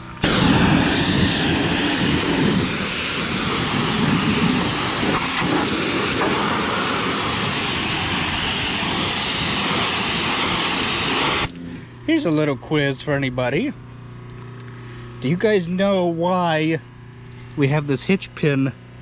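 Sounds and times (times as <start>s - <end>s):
pressure washer spraying: 0.2s - 11.5s.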